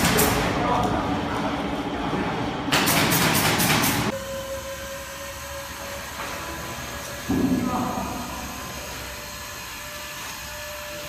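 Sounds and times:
electric lift motor whine: 4.1s - 11.0s.

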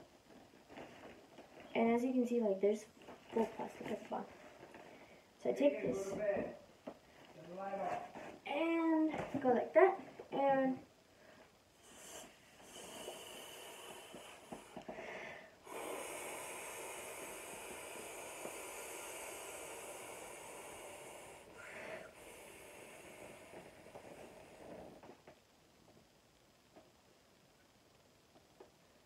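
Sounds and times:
person blowing into inflatable: 11.8s - 24.8s.

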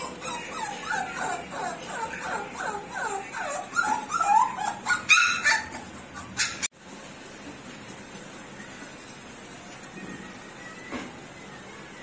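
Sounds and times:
puppy whining: 0.0s - 6.7s
puppy yelp: 0.0s - 6.7s.

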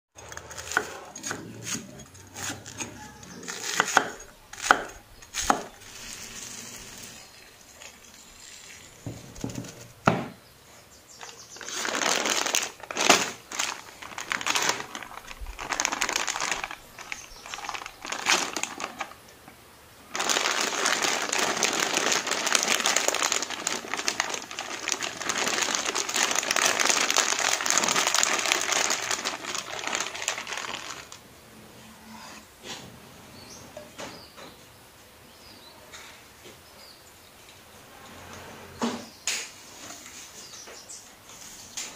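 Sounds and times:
plastic bag crinkling: 11.5s - 19.3s, 20.1s - 31.2s.

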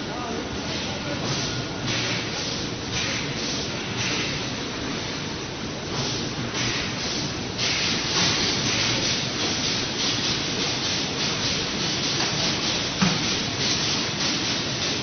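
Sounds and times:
welding machine hissing: 5.9s - 15.0s.

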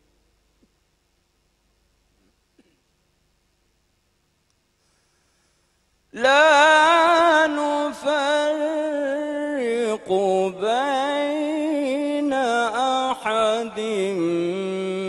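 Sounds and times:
man reciting melodically: 6.2s - 15.0s.

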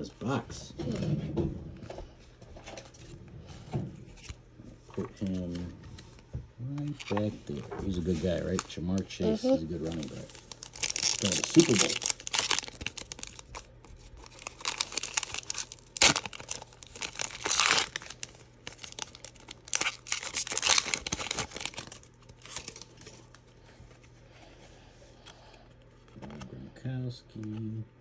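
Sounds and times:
foil wrapper crinkling and tearing: 6.8s - 23.4s.

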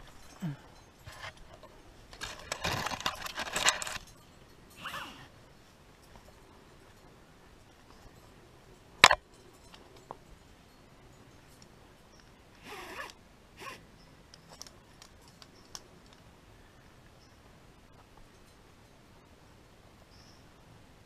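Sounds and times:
light clicks of gear: 14.2s - 16.3s.

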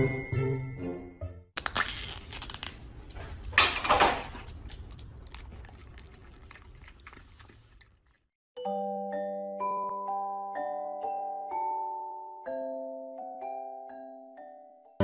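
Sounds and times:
music: 0.0s - 1.6s, 8.6s - 15.0s
plastic lid crinkling and tearing: 1.6s - 5.0s
dog licking: 4.4s - 8.3s.

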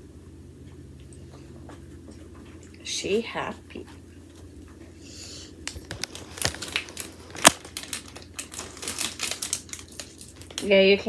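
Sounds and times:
packaging crinkling: 5.6s - 11.0s.

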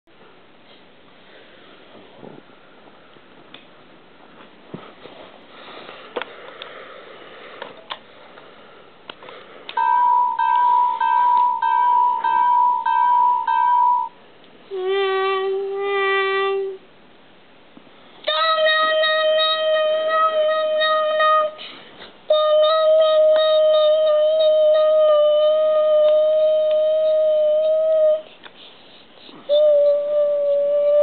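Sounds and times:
electronic bell dinging: 9.8s - 14.2s.

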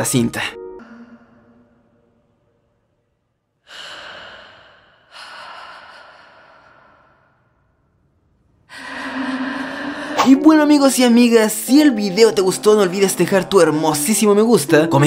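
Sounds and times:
woman breathing heavily: 3.6s - 7.8s, 8.7s - 10.4s.

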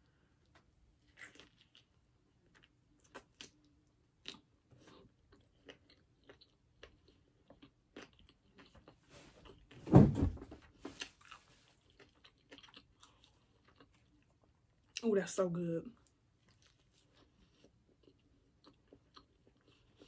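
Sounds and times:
wet chewing: 1.0s - 9.7s, 11.0s - 15.1s, 16.0s - 20.0s
loud muffled thump: 9.9s - 10.6s.

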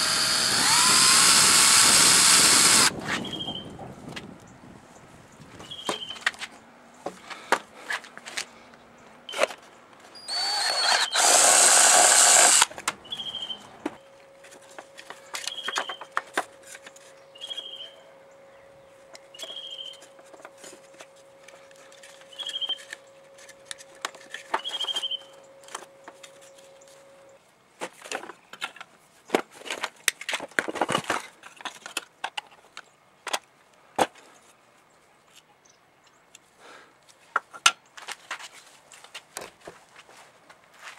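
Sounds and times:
cordless drill drilling into plastic: 0.0s - 2.9s, 10.3s - 12.7s.

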